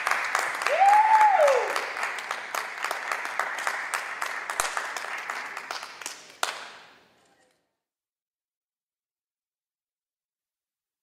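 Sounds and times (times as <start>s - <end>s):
audience applause: 0.0s - 6.7s
sharp single clap: 4.5s - 4.9s.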